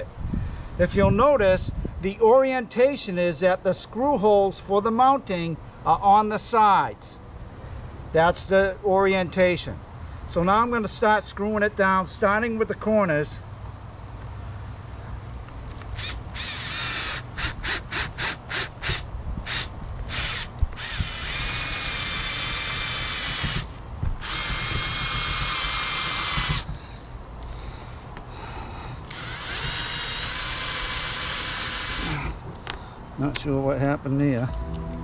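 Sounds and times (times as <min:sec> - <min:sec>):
cordless drill whining: 0:16.0 - 0:26.8, 0:29.1 - 0:32.3.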